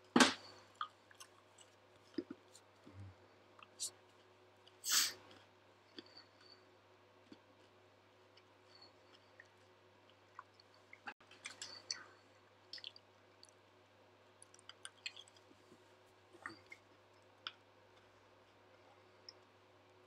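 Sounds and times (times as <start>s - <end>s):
faint steady hum: 0.0s - 20.0s
small clicks and ticks: 14.3s - 15.8s.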